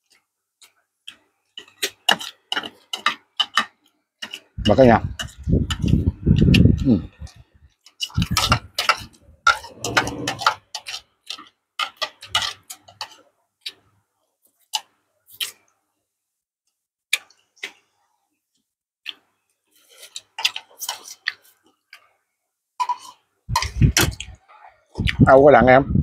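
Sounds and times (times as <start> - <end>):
mouth sounds of eating: 4.7 - 7.4, 9.5 - 11.0, 23.0 - 25.3.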